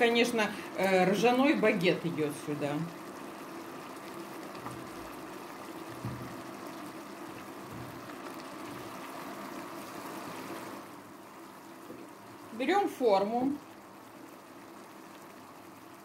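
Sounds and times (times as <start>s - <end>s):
faint steady hum: 0.0s - 16.0s
soup bubbling in a pan: 0.0s - 16.0s.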